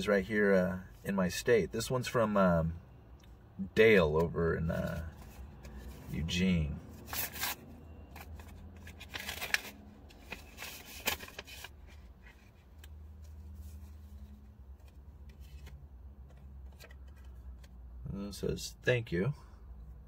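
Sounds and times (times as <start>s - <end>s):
paper rustling and crinkling: 7.0s - 17.8s.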